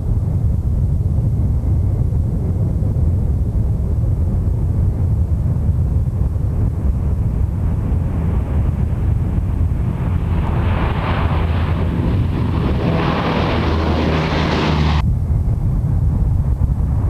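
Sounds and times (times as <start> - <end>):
propeller drone: 0.0 - 17.0
rushing engine noise: 5.1 - 17.0.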